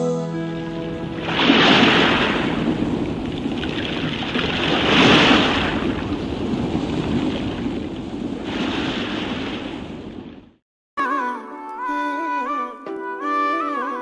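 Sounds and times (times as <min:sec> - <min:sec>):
surf rushing: 0:00.5 - 0:10.6.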